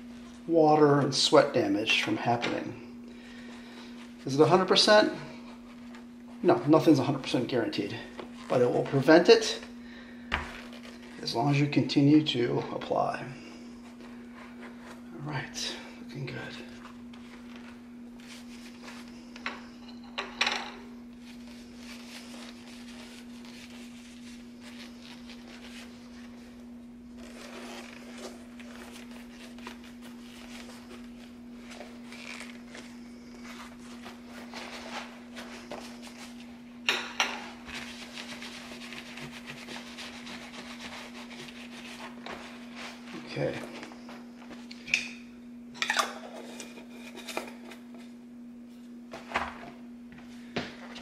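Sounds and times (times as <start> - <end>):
steady low hum: 0.0 - 51.0
leather mitt rubbing: 21.3 - 36.6, 37.6 - 44.5.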